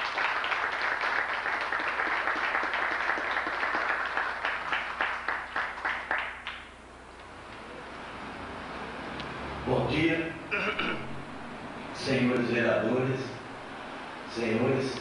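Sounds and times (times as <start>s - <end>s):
audience clapping: 0.0s - 6.8s.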